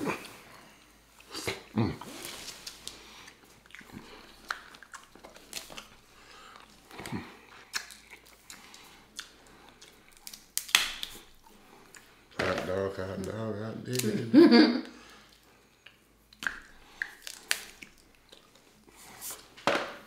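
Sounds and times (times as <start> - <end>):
close-up chewing: 0.1 - 12.4, 15.0 - 19.4
crab shells cracking: 3.8 - 12.0, 15.9 - 18.6.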